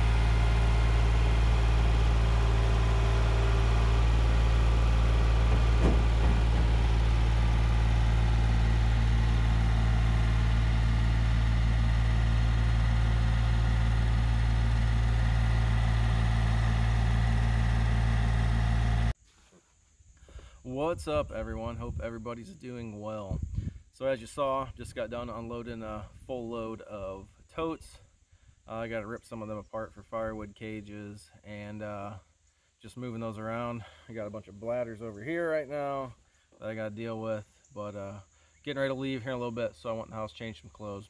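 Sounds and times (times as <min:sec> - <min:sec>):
tractor diesel engine running: 0:00.0 - 0:19.2.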